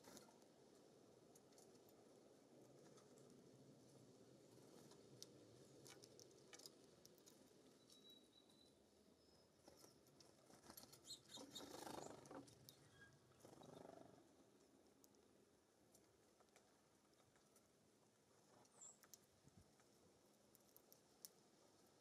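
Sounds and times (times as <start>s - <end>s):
birds clicking and tapping: 9.6s - 14.0s.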